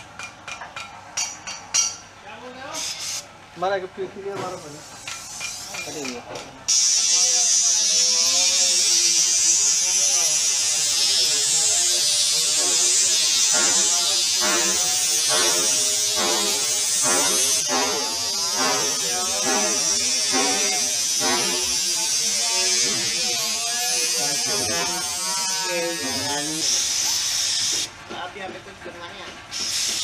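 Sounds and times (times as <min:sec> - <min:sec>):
spray gun hissing: 0:06.7 - 0:27.9
wavering motor buzz: 0:16.3 - 0:27.6.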